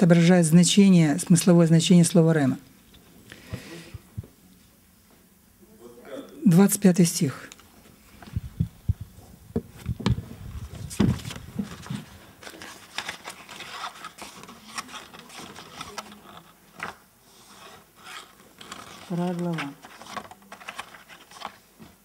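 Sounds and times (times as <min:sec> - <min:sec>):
microphone handling knocks: 0:08.3 - 0:12.0
book pages leafed through: 0:09.8 - 0:22.0
paper rustling: 0:09.8 - 0:22.0.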